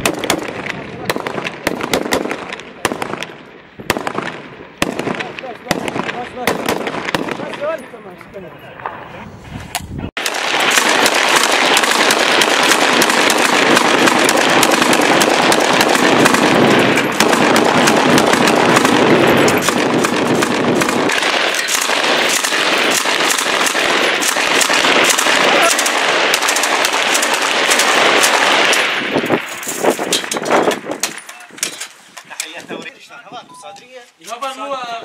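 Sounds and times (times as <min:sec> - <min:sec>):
loud automatic gunfire: 0:00.0 - 0:07.7, 0:10.2 - 0:29.5.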